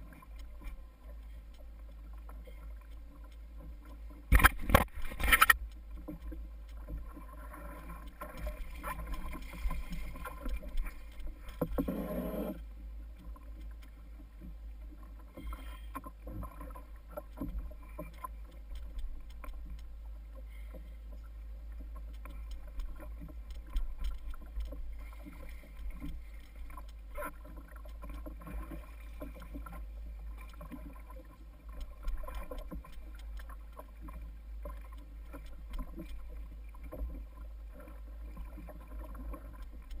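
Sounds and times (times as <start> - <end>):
water lapping against kayak hull: 0.0 - 40.0
knocks and clicks: 4.3 - 6.3.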